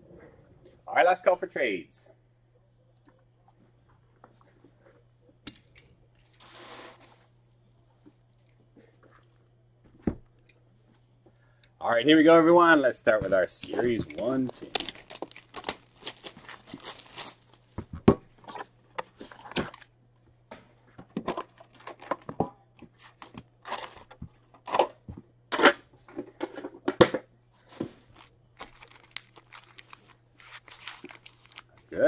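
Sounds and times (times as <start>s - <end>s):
foil packs rustling: 13.6s - 17.8s, 21.4s - 22.3s, 28.0s - 32.0s
plastic wrap tearing and crinkling: 14.4s - 17.8s, 21.5s - 22.2s, 28.1s - 32.0s.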